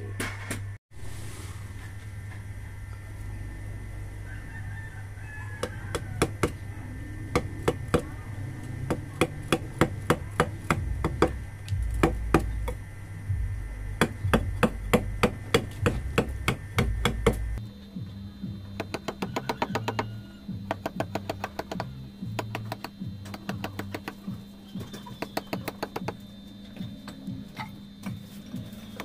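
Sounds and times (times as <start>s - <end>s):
mallet tapping chisel into stone: 12.0s - 12.8s, 18.8s - 20.1s, 20.7s - 24.2s.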